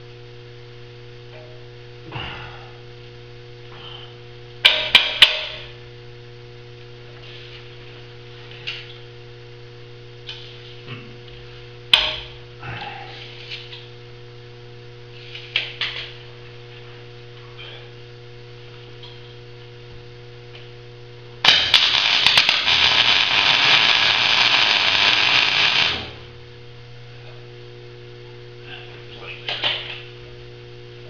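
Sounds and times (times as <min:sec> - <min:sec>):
electrical hum: 0:00.0 - 0:31.0
welding arc crackling: 0:21.4 - 0:26.4.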